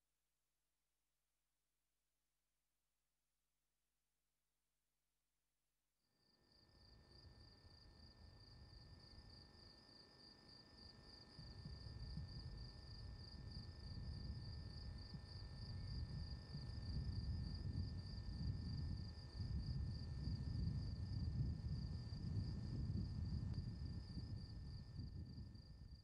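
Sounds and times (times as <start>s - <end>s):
crickets chirping: 6.2s - 26.0s.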